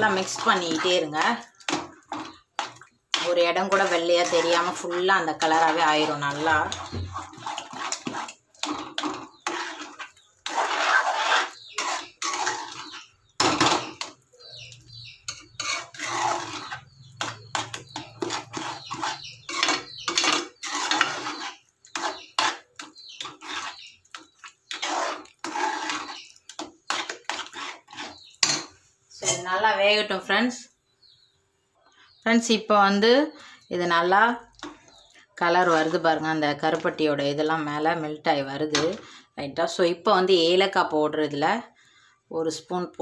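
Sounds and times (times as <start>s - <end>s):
spoon scraping steel pan: 0.0s - 29.5s, 34.6s - 36.1s.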